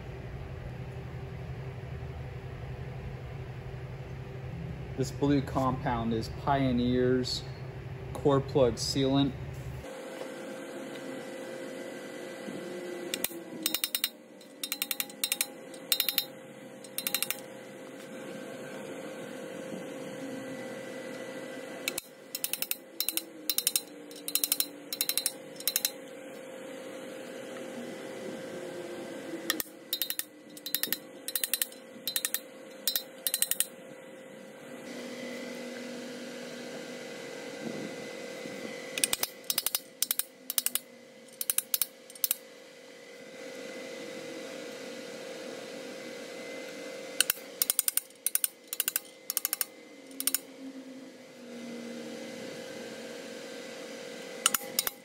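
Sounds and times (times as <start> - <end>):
shop hum: 0.0 - 55.0
hammer tapping on metal: 13.2 - 16.3, 21.9 - 26.0, 29.5 - 33.7.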